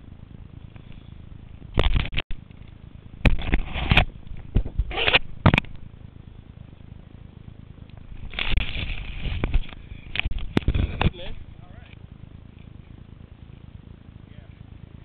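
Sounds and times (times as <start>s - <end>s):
microphone rustling against grass: 8.0s - 11.6s.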